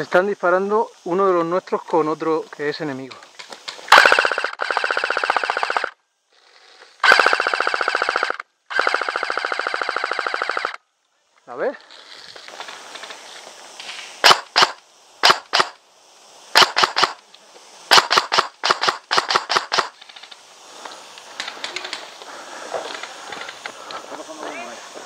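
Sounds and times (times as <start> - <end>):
airsoft guns firing: 3.9 - 6.0, 7.0 - 10.8, 14.2 - 15.8, 16.5 - 17.2, 17.9 - 20.0.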